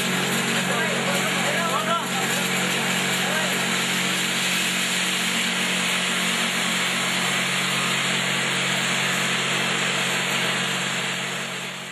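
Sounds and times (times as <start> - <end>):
candy pieces rattling on metal tray: 0.0 - 3.9
vibratory feeder buzzing hum: 0.0 - 11.9.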